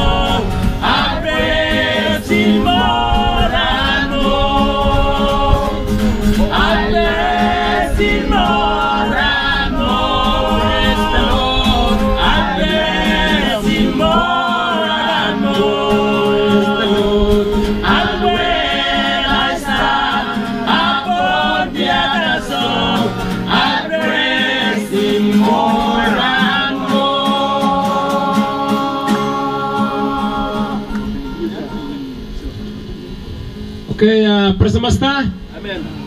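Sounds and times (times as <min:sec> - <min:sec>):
group singing in harmony: 0:00.0 - 0:31.9.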